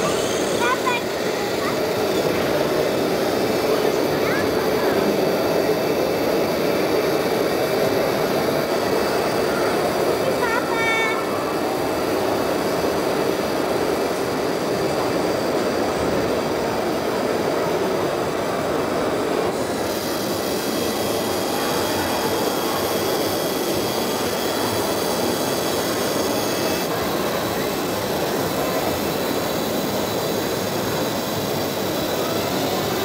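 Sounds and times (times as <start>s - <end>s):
small motors whirring: 0.0s - 33.0s
thin high whine: 0.0s - 33.0s.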